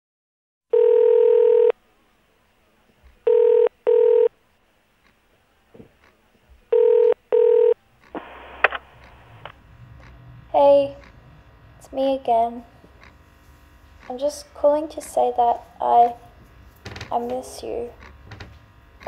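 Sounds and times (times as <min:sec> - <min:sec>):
telephone ringback tone: 0:00.7 - 0:01.7, 0:03.3 - 0:04.3, 0:06.8 - 0:07.8
phone line hiss: 0:06.8 - 0:09.5.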